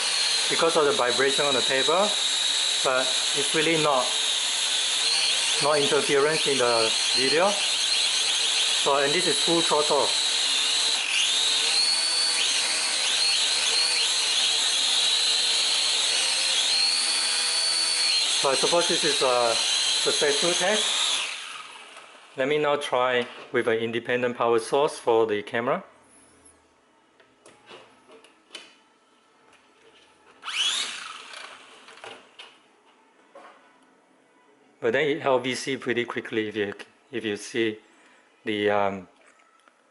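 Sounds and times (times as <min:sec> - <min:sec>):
quadcopter motors whining: 0:00.0 - 0:21.8, 0:30.4 - 0:31.5.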